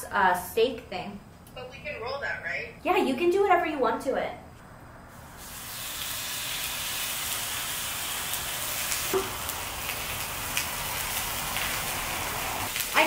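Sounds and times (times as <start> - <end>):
pork sizzling in frying pan: 5.1 - 13.0.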